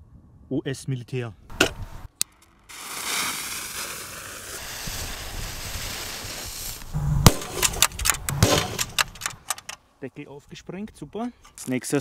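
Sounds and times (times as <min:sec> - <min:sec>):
firecracker fuse hissing: 0:02.6 - 0:07.9
firecracker bang in metal can: 0:07.2 - 0:09.2
sharp cracks and knocks: 0:07.2 - 0:09.8.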